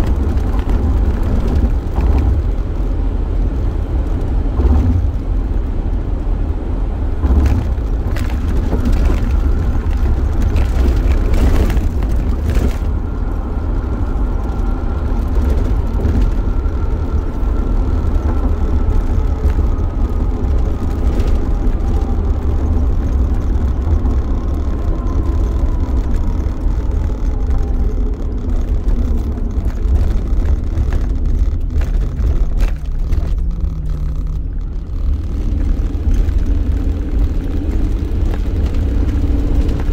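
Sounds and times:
engine and road noise: 0.0s - 39.9s.

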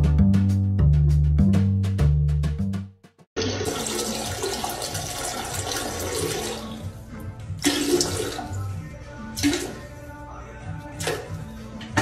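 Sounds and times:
toilet flushing: 3.4s - 8.7s, 9.4s - 9.9s.

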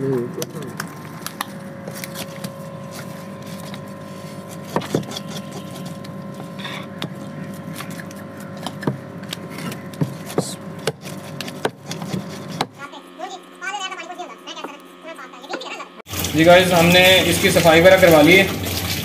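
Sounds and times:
steady hum: 0.0s - 19.0s
knife scraping fish scales: 1.9s - 8.8s, 9.4s - 12.6s.

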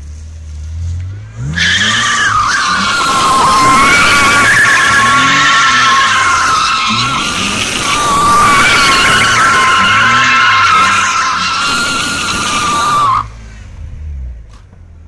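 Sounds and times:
car engine revving: 0.6s - 15.0s
tyres squealing: 1.6s - 13.3s.

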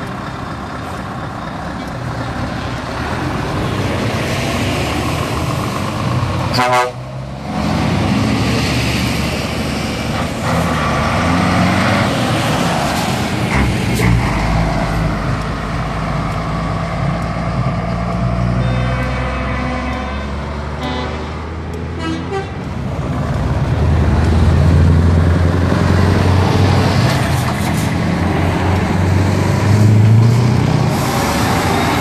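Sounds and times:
heavy trucks driving past: 0.0s - 32.0s
truck horn toots: 6.5s - 7.1s, 18.5s - 22.6s.

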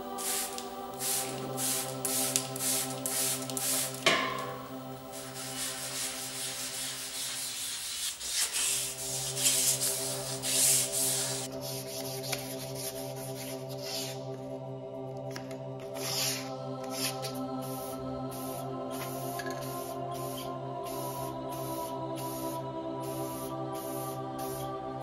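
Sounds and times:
soft background music: 0.0s - 25.0s
hand rubbing bicycle frame: 0.2s - 14.2s.

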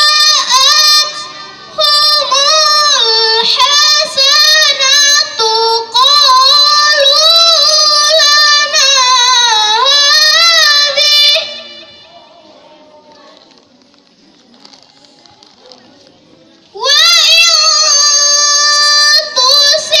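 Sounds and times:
girl reciting melodically: 0.0s - 12.0s, 16.7s - 20.0s.

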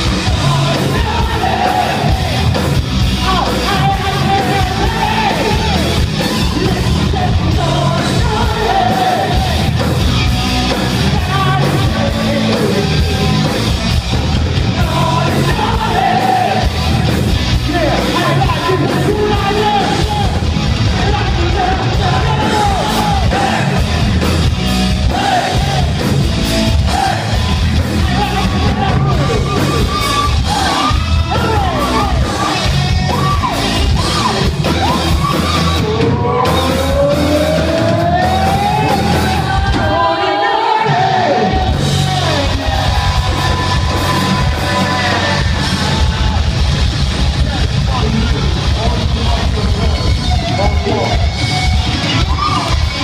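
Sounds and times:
person singing and yelling: 0.0s - 2.6s, 3.2s - 9.8s, 14.6s - 23.9s, 26.8s - 46.5s
rock band playing live: 0.0s - 53.0s.

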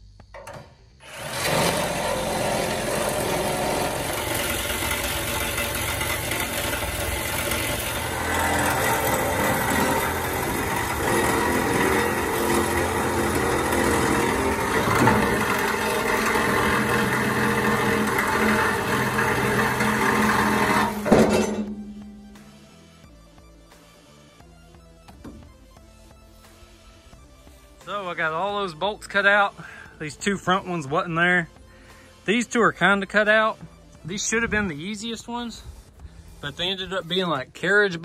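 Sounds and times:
angle grinder cutting steel: 1.0s - 22.7s.

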